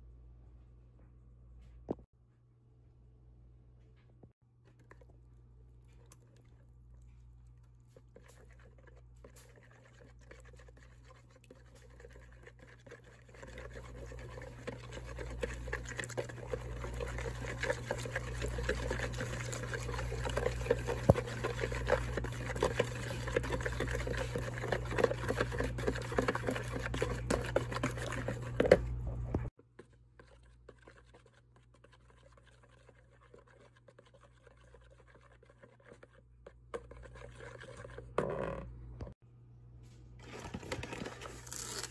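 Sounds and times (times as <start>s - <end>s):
whisk beating liquid in a bowl: 5.9s - 38.3s.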